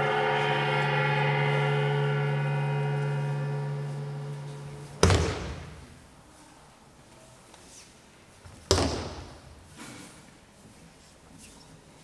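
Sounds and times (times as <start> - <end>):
steady pitched tone: 0.0 - 6.2.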